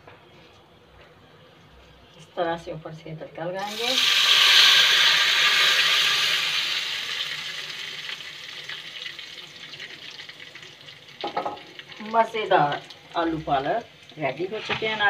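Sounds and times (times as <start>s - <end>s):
hot oil sizzling: 3.6s - 15.0s.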